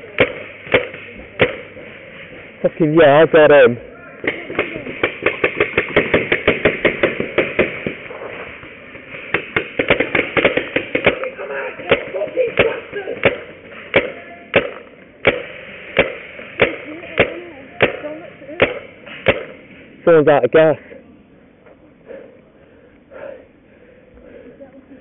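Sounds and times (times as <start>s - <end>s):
paintball markers firing: 0.1s - 1.8s, 4.2s - 19.6s.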